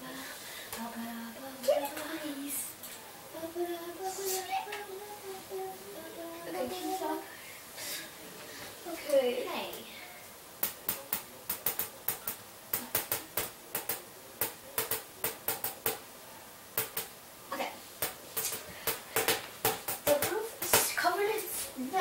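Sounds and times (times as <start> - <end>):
sharp clicks and taps: 10.6 - 16.0, 16.8 - 17.2.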